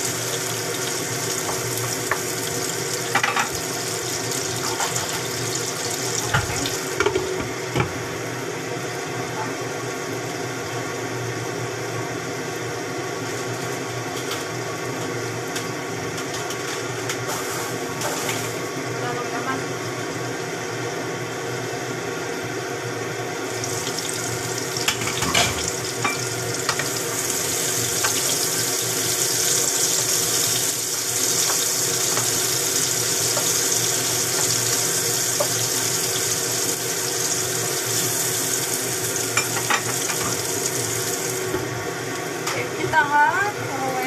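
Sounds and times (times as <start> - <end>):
mushrooms sizzling in hot oil: 0.0 - 9.1, 12.2 - 20.9, 23.2 - 44.0.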